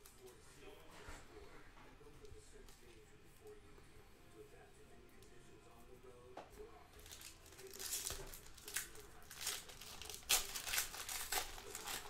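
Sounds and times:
foil pack crinkling and tearing: 6.9s - 12.0s.

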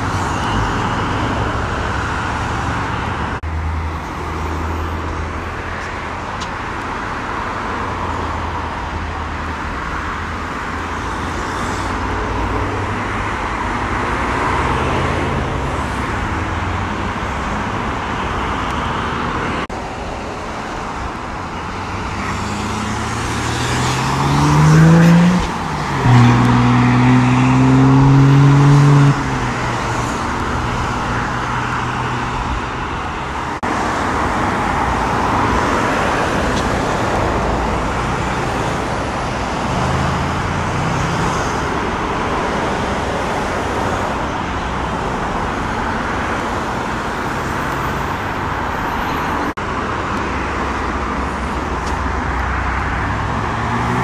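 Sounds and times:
road traffic: 0.0s - 54.0s
car engine accelerating hard: 22.1s - 29.7s.

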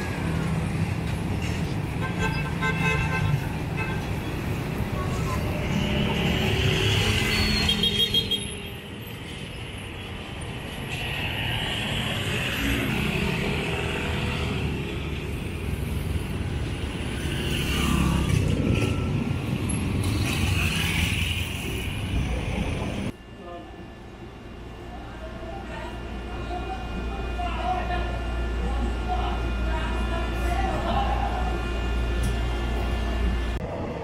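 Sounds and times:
cars and trucks passing: 0.0s - 23.2s.

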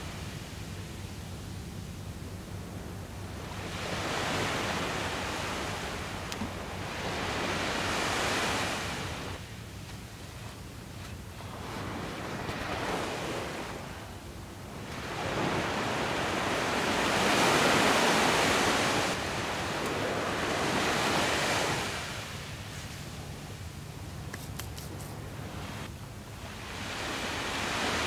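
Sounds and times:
waves washing onto beach: 0.0s - 28.0s.

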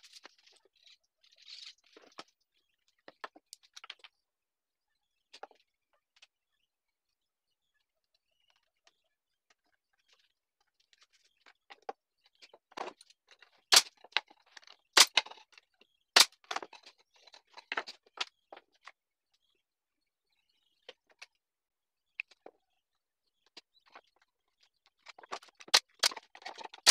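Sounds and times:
wooden pieces knocking: 25.1s - 26.9s.

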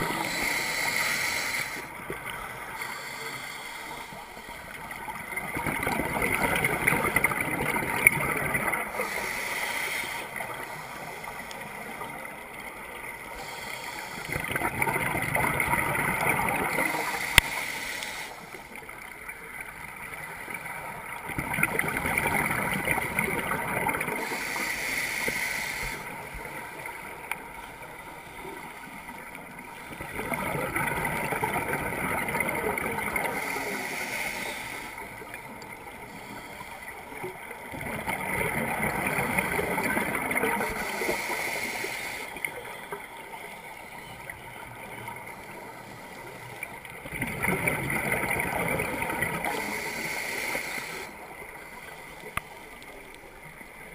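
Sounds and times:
bubbling exhaled air underwater: 5.2s - 9.0s, 14.3s - 17.1s, 37.7s - 41.2s, 47.0s - 50.2s.

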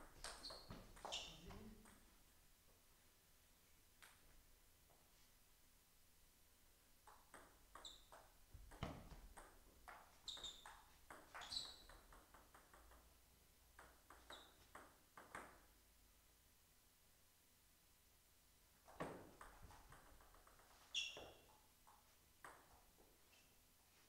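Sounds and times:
ping pong ball on paddles and table: 0.0s - 2.2s, 7.0s - 15.8s, 18.8s - 23.1s
short high squeaks: 0.4s - 1.4s, 10.2s - 10.8s, 11.4s - 11.9s, 20.9s - 21.5s.

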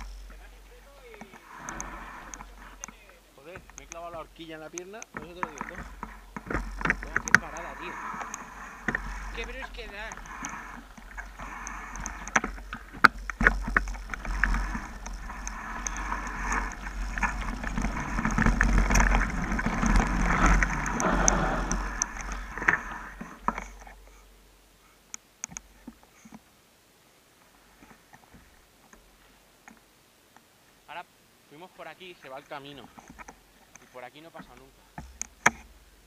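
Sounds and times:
bike clicks: 0.0s - 24.2s, 25.1s - 26.4s
mountain bike tyres rolling on dirt: 0.0s - 24.2s
bike rattling and knocking: 2.3s - 24.0s.

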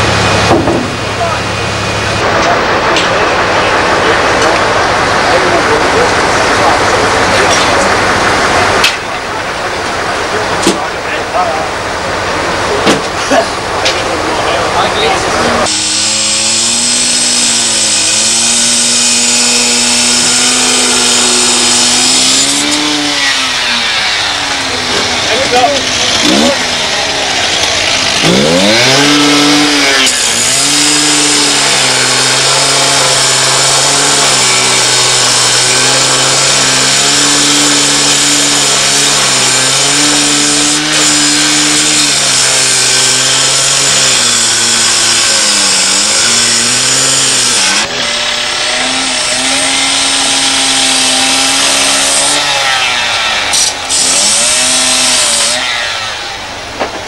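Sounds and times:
cut-off saw engine revving: 0.0s - 56.8s
abrasive disc grinding steel: 12.4s - 56.7s.

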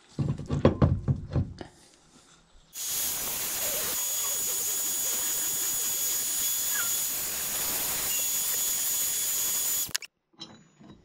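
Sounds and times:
heat gun blowing air: 2.8s - 10.0s.

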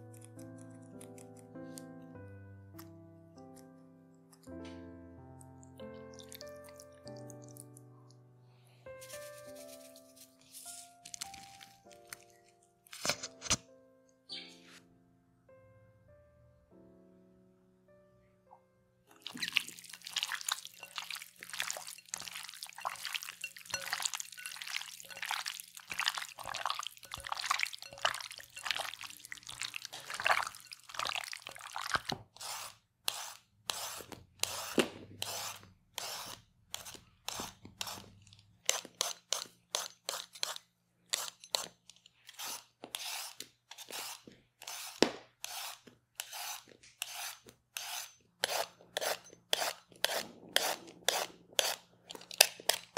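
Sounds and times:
hands squishing raw chicken: 19.2s - 32.4s
peeler scraping carrot: 32.0s - 52.9s.

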